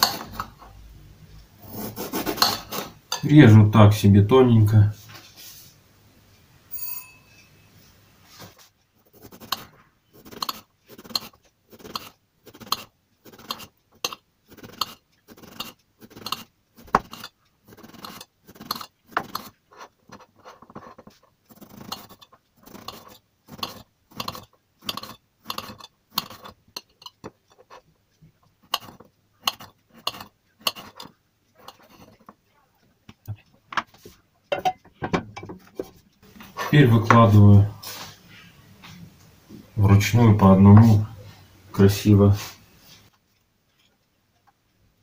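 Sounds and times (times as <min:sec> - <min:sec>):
knife slicing eggplant: 0:09.1 - 0:19.6, 0:21.6 - 0:26.6, 0:28.7 - 0:31.1.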